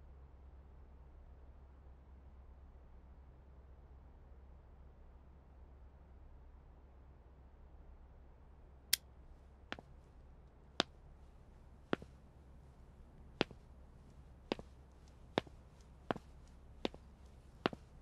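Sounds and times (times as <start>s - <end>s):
footsteps on wooden floor: 14.5s - 14.7s, 17.6s - 17.9s.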